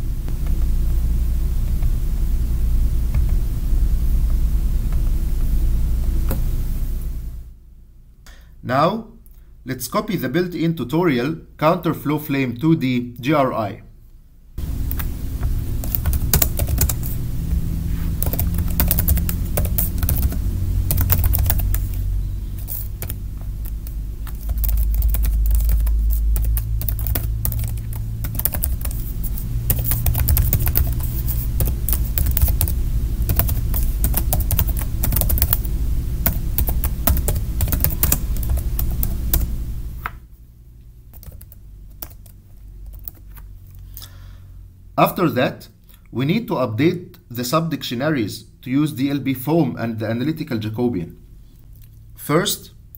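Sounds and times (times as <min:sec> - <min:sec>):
low rumble: 0:00.0 - 0:08.0, 0:14.6 - 0:40.7.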